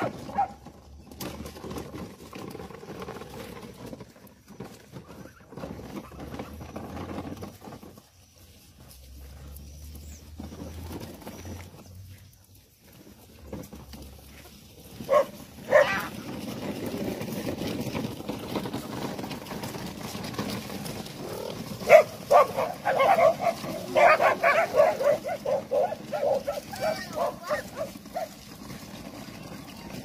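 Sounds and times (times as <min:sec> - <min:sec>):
dog barking: 0:15.1 - 0:16.1, 0:21.8 - 0:28.3.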